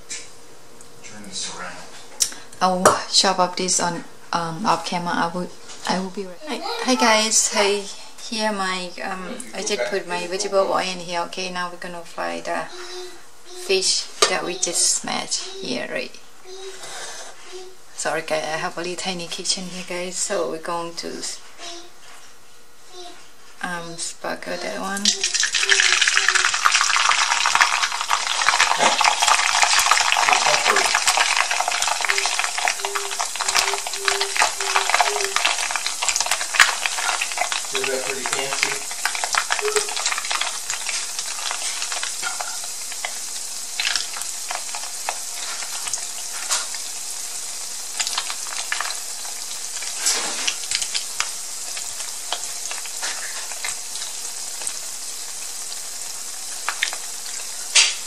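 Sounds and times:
fish deep-frying in oil: 24.0 - 58.0.

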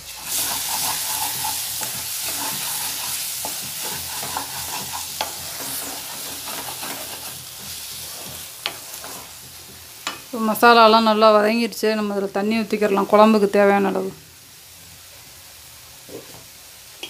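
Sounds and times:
spatula stirring and scraping: 0.0 - 10.4
gravy sizzling in a pan: 0.0 - 17.0.

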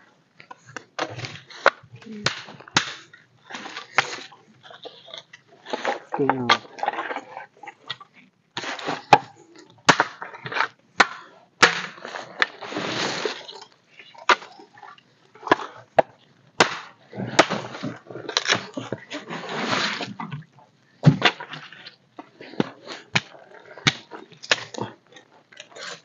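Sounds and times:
rustling: 0.0 - 26.0
sticks snapping and knocking: 0.7 - 3.1, 15.5 - 17.7.

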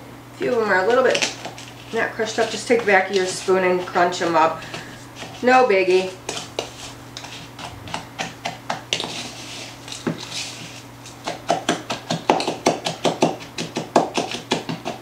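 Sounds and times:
spoon scraping and tapping a bowl: 6.3 - 15.0.

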